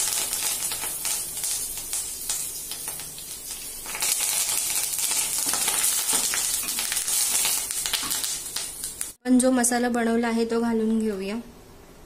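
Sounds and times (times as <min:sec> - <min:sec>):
leaves sizzling in hot oil: 0:00.0 - 0:09.2.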